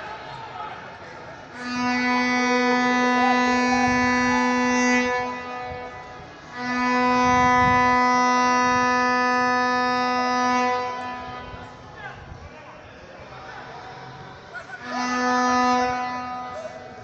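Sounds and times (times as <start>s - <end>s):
vuvuzela blasts: 1.5s - 12.4s, 14.7s - 17.0s.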